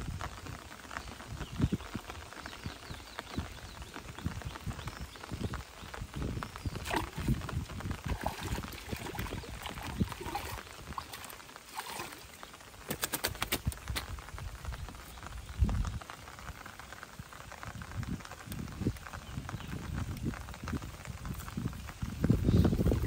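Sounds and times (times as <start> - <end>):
light rain pattering on water: 0.0 - 23.0
fish splashing and thrashing: 6.7 - 14.2.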